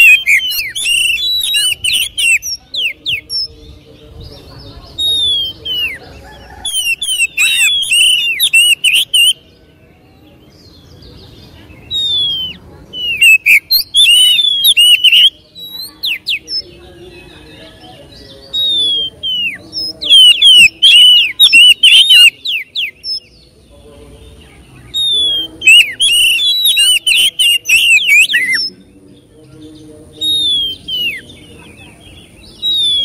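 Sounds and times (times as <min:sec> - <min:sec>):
songbird singing whistles and runs: 0:00.0 - 0:03.5, 0:05.0 - 0:09.4, 0:11.9 - 0:16.6, 0:18.5 - 0:23.3, 0:24.9 - 0:28.8, 0:30.2 - 0:31.3, 0:32.5 - 0:33.0.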